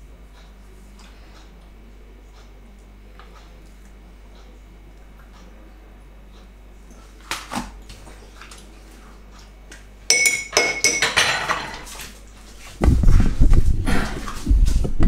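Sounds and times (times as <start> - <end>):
spoon clinking against glass and dishes: 10.1 - 11.9.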